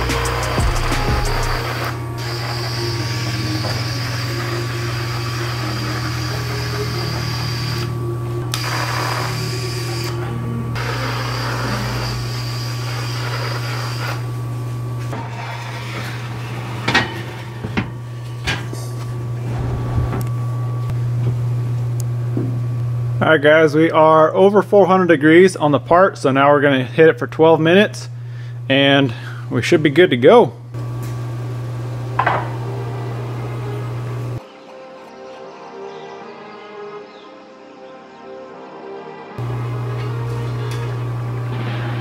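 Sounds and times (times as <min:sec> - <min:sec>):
powder spray gun hissing: 0:00.0 - 0:14.4.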